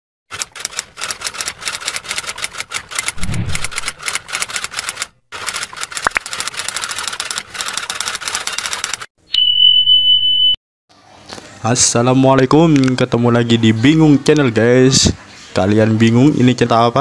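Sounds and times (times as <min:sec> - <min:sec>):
rapid sharp clicks: 0:00.3 - 0:09.1.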